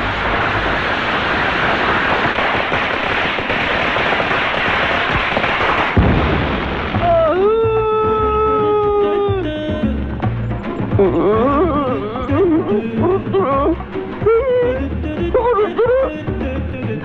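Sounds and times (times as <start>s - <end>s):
firework boom: 0.0s - 8.8s
firecrackers crackling: 0.0s - 17.0s.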